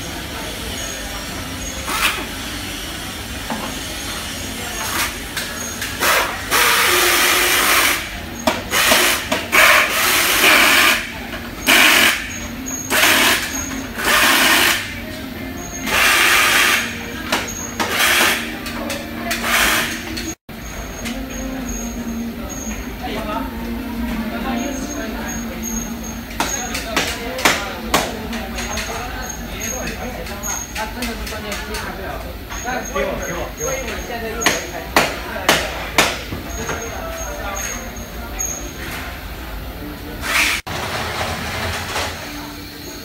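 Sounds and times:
machinery hum: 0.0 - 30.8.

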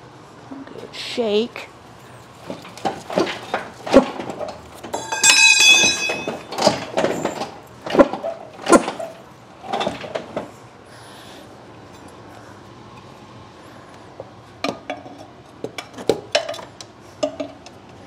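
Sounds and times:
metal clunks and rattles: 2.4 - 10.6
metal ringing: 4.9 - 7.3.

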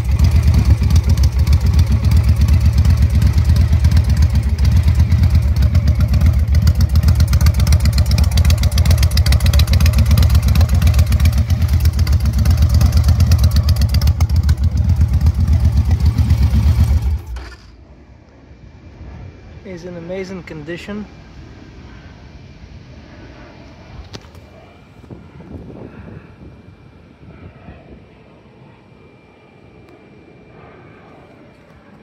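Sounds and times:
motorcycle engine idling: 0.0 - 17.7.

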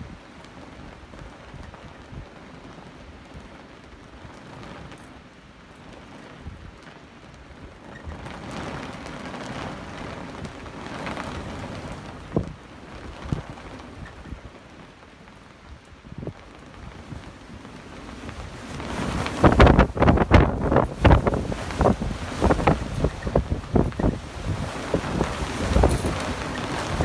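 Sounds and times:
wind buffeting microphone: 5.8 - 27.0.

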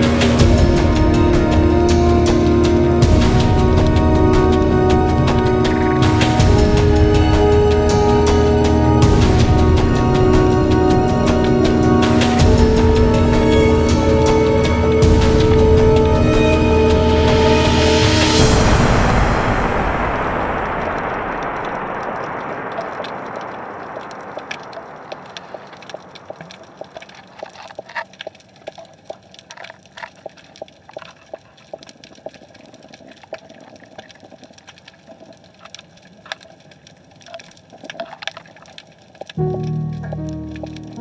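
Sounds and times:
underwater clicks and crackles: 21.5 - 41.0.

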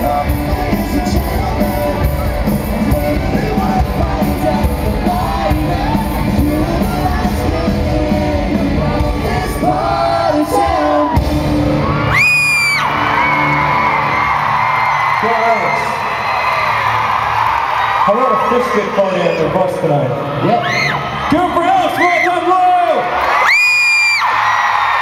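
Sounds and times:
lead vocal singing: 0.0 - 12.2
live pop-punk band: 0.0 - 15.2.

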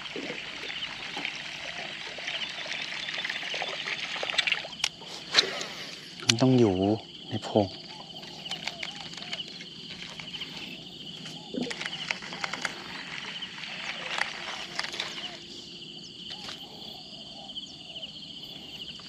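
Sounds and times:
pulsing insect trill: 0.0 - 19.0
lower animal calls: 7.2 - 18.2.

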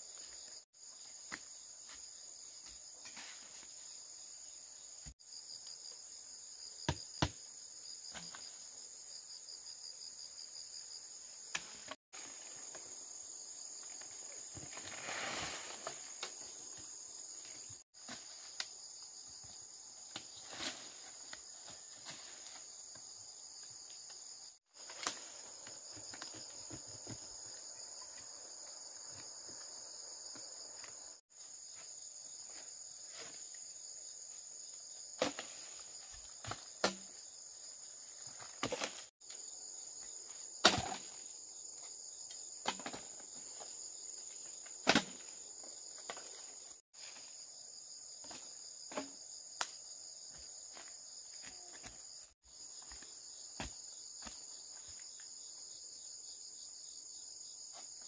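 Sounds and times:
crickets chirping: 0.0 - 58.0
insects chirping: 0.0 - 58.0.

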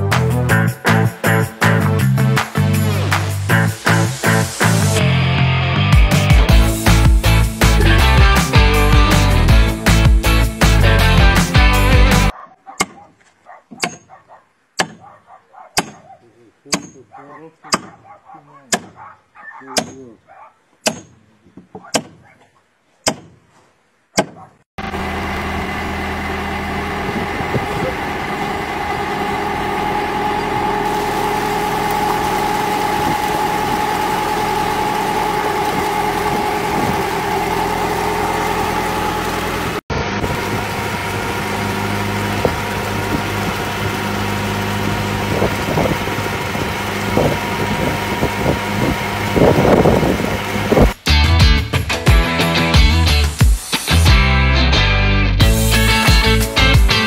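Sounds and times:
water pump engine running: 24.8 - 51.0.

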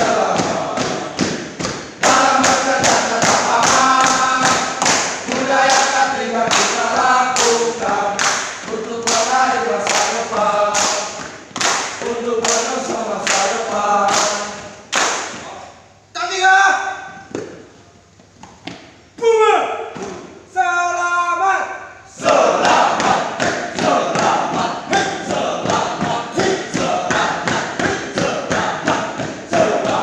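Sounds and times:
men singing a cheer in unison: 0.0 - 1.4, 2.0 - 11.3, 12.0 - 14.7, 22.2 - 30.0
hand claps: 0.3 - 15.5, 22.6 - 30.0.

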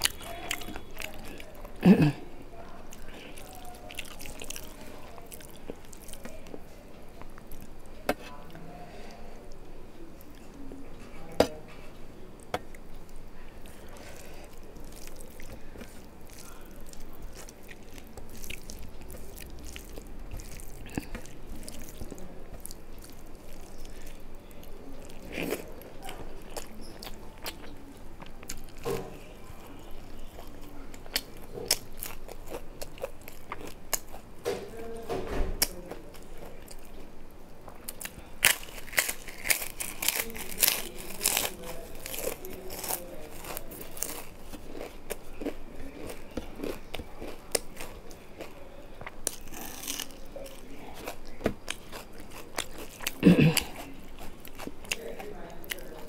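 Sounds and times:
chewing: 0.0 - 34.3, 35.6 - 56.0.

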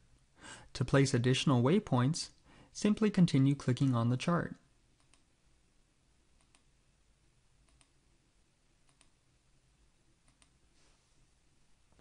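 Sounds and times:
faint computer mouse clicks: 5.0 - 5.3, 6.4 - 6.7, 7.7 - 8.0, 8.8 - 9.2, 10.2 - 10.6.

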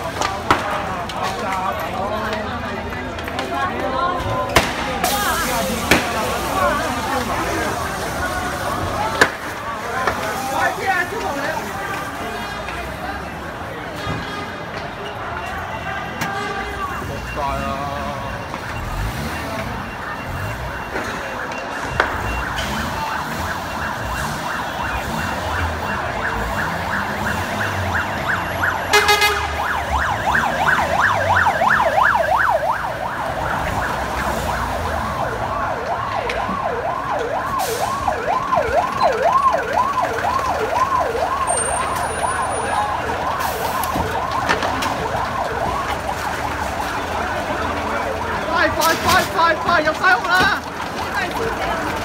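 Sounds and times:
fire engine siren: 0.0 - 52.0
fire engine horn blast: 28.8 - 30.0.

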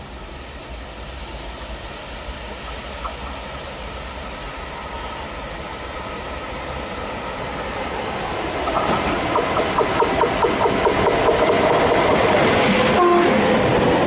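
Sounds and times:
train wheel clicks: 8.6 - 12.8.

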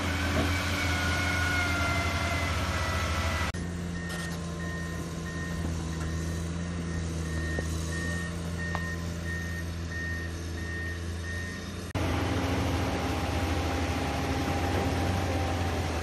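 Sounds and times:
excavator diesel engine: 0.0 - 16.0
electronic warning beeper: 3.9 - 11.9.

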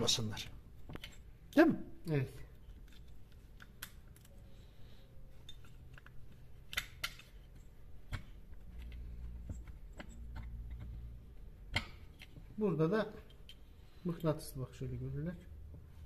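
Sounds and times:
metal tool clicks and taps: 5.5 - 7.4, 8.0 - 11.0, 11.7 - 12.4.

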